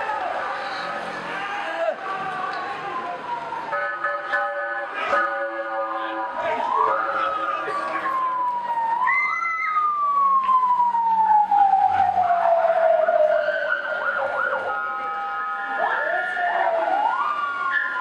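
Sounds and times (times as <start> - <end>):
ambulance siren wailing: 0.0 - 18.0
steady-pitched siren tone: 5.1 - 18.0.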